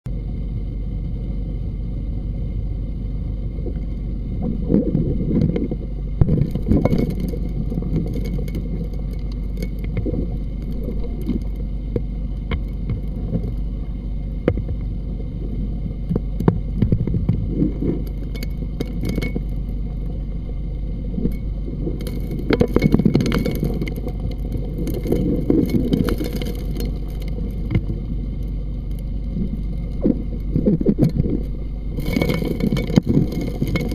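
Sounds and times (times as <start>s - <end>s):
underwater engine and pump drone: 0.0s - 33.9s
gravel and stones rattling: 4.5s - 13.8s, 16.2s - 20.3s, 21.1s - 33.9s.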